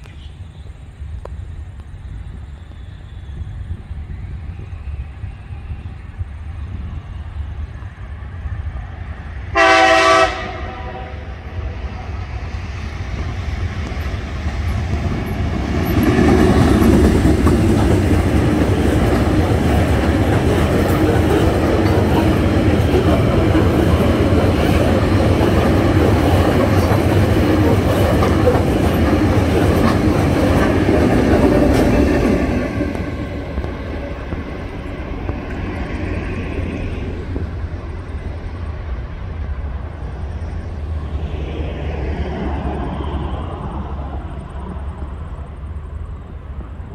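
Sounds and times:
train wheels rumbling and clicking: 0.0s - 9.5s, 11.4s - 46.9s
locomotive horn blast: 9.5s - 11.6s.

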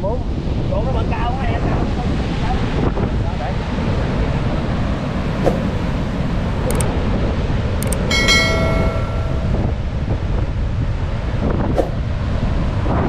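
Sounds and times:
brief ringing tone: 7.8s - 9.9s.

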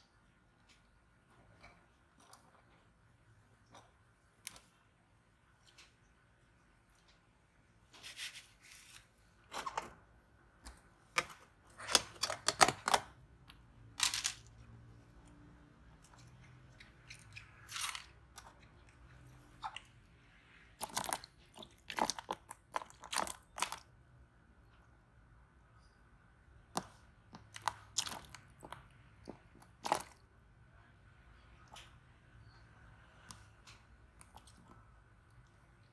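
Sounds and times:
plastic tubs crinkling and clattering: 11.0s - 13.2s, 20.8s - 23.8s, 27.5s - 30.2s.

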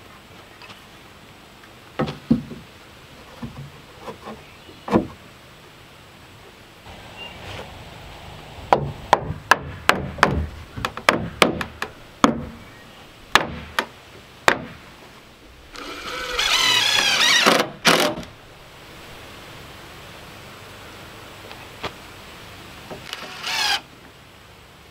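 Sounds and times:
sharp knocks on wood: 8.7s - 12.6s, 13.3s - 13.9s, 14.5s - 14.8s
cordless drill whirring: 15.8s - 18.2s, 23.1s - 23.8s.

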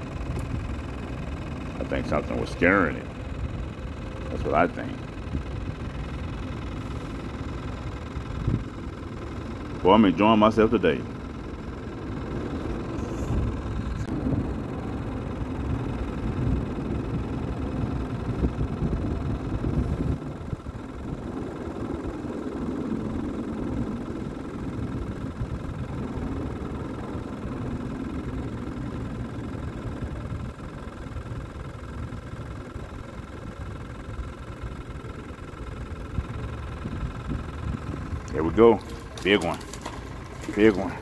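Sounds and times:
steady mechanical hum: 0.0s - 41.0s
deep low rumble: 12.9s - 17.3s.

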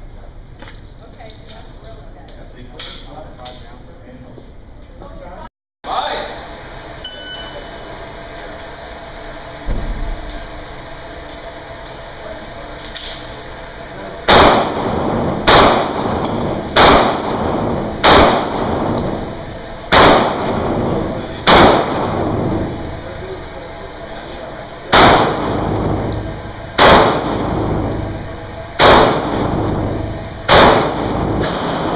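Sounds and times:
pistol shots echoing indoors: 14.3s - 22.8s, 24.9s - 31.9s.

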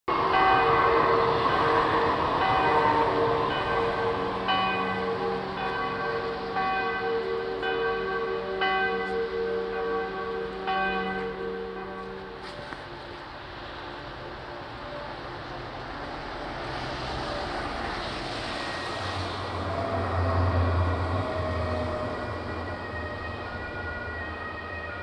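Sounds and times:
church bells ringing: 0.1s - 25.0s
rushing noise: 9.2s - 25.0s.

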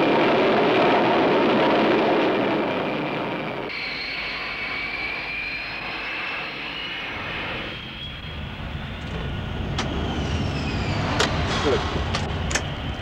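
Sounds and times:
jet engine whining: 0.0s - 13.0s
low rumble: 7.0s - 13.0s.

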